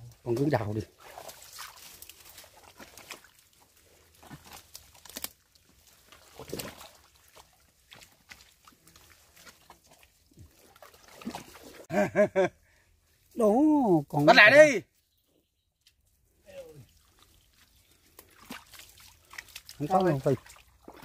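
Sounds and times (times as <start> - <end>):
hands squelching in wet mud: 0.1 - 11.9, 16.4 - 21.0.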